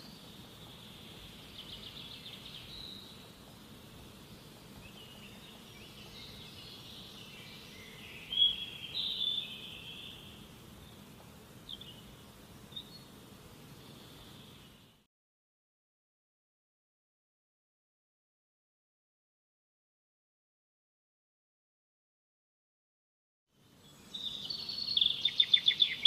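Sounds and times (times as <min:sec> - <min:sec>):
birds chirping and calling: 0:04.2 - 0:13.2, 0:24.1 - 0:26.0.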